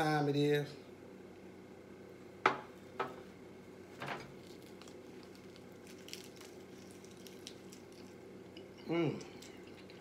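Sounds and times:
bottle knocking on glass table: 0:02.4 - 0:03.2.

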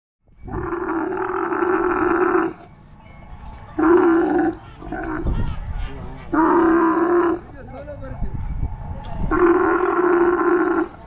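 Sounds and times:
camel bellowing: 0:00.4 - 0:07.9, 0:09.0 - 0:11.0
camel grunting: 0:00.5 - 0:02.7, 0:03.8 - 0:07.8, 0:09.3 - 0:11.0.

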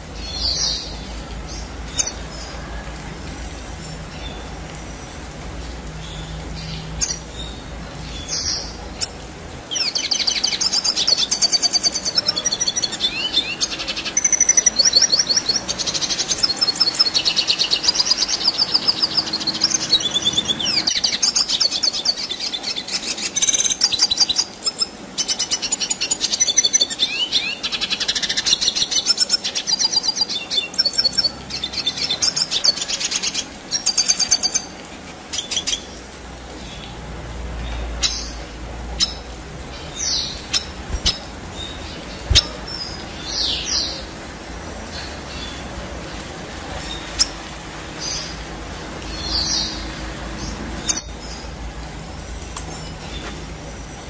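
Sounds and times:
bird singing twittering trills: 0:06.0 - 0:36.9, 0:49.0 - 0:51.6.

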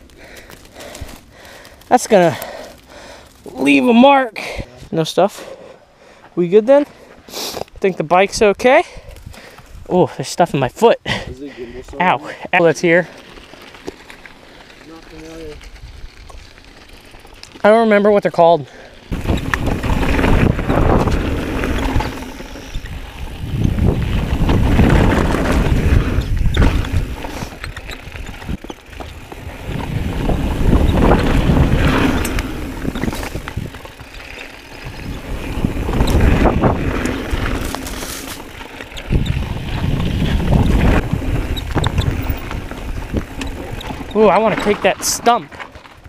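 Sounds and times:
tyres rumbling over gravel: 0:12.8 - 0:46.0
bike knocking and rattling: 0:13.1 - 0:18.5, 0:19.1 - 0:46.0
wind buffeting microphone: 0:15.0 - 0:16.6, 0:19.0 - 0:45.0.

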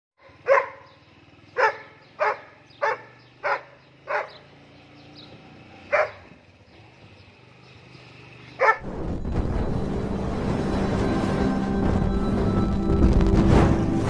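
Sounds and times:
dog barking: 0:00.2 - 0:01.0, 0:01.6 - 0:04.4, 0:05.8 - 0:06.4, 0:08.6 - 0:08.8
low vehicle engine hum: 0:00.3 - 0:14.0.

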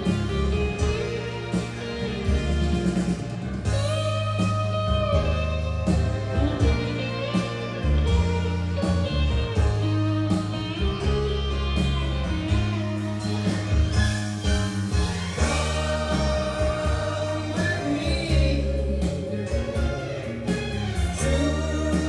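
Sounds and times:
electric guitar bending notes: 0:00.0 - 0:22.0
slow blues ballad on hi-fi: 0:00.0 - 0:22.0
steady bass line: 0:00.0 - 0:22.0.

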